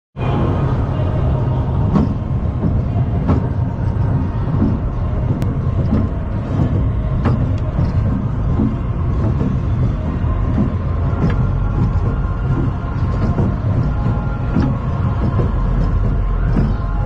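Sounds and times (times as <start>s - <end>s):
chain lift rumbling: 0.3s - 17.0s.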